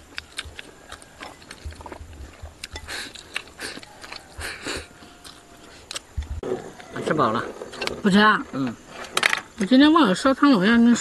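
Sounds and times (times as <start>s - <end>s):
people slurping food: 0.4s - 6.7s.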